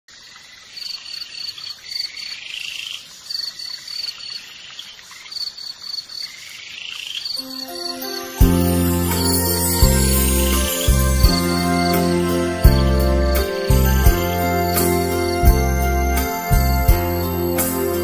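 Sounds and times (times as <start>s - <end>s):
insects chirping in trills: 0.1s - 12.4s
soft musical notes: 7.4s - 18.0s.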